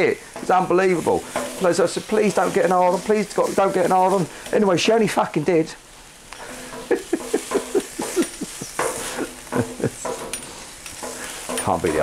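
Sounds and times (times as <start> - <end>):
chicken sizzling on griddle: 0.0 - 12.0
man laughing hard: 6.9 - 10.1.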